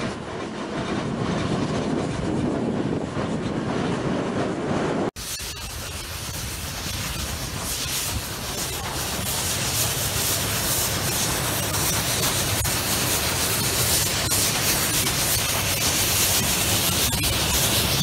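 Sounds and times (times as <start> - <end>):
train wheels clicking on rail joints: 0.0 - 18.0
steam hissing rush: 5.1 - 18.0.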